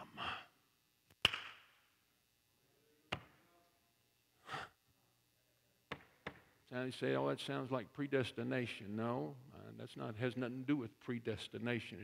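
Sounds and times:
man breathing: 0.0 - 0.6, 4.4 - 4.8.

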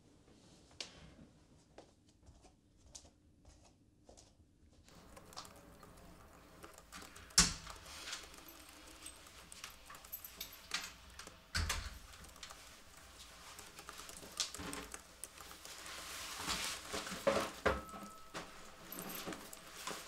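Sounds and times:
footsteps: 1.6 - 20.0
laptop keyboard typing: 4.9 - 20.0
rustling of clothes and bag: 4.9 - 20.0.

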